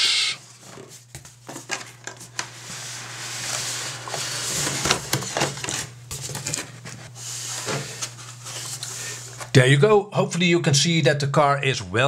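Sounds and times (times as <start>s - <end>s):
cardboard scraping and rustling: 0.5s - 9.5s.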